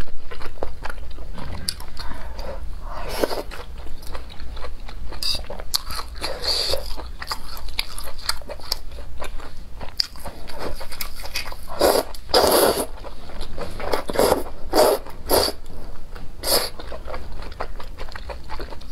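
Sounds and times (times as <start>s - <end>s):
mouth clicks and chewing: 3.4s - 18.9s
noodle slurps: 11.8s - 12.9s.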